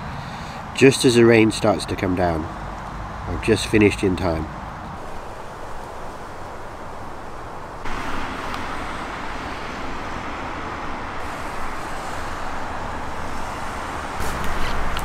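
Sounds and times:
traffic on wet road: 0.0 - 15.0
low rumble with crackling: 4.7 - 15.0.

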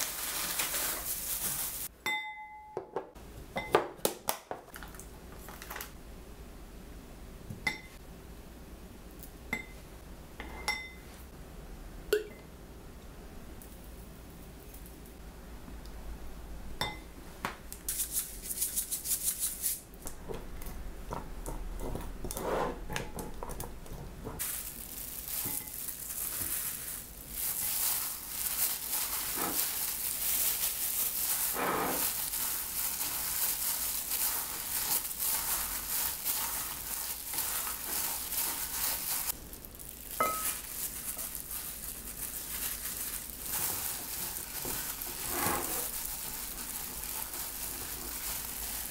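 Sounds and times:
plastic glove crinkling: 0.0 - 1.9, 4.7 - 6.0, 24.4 - 48.9
wooden spoon scraping in bowl: 22.2 - 22.9, 31.3 - 32.3, 43.5 - 48.2
gloved hand squishing food: 24.4 - 48.9.

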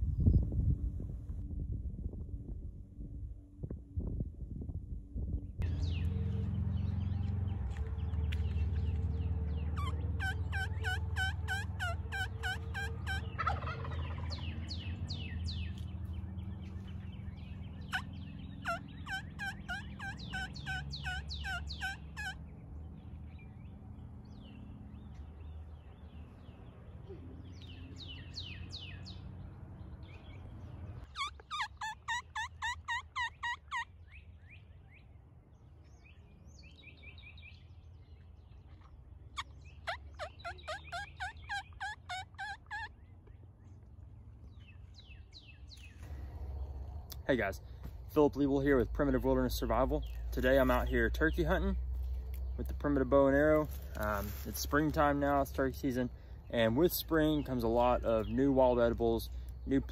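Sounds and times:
songbirds chirping: 5.2 - 59.9
wild turkey yelping: 9.7 - 14.9, 17.8 - 22.4, 31.0 - 34.2, 39.4 - 43.1.

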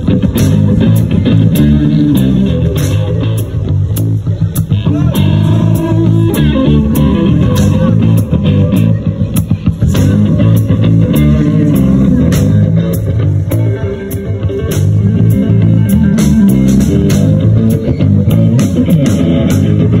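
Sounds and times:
bass guitar: 0.0 - 20.0
drum kit with cymbals: 0.0 - 20.0
electric guitar: 0.0 - 20.0.

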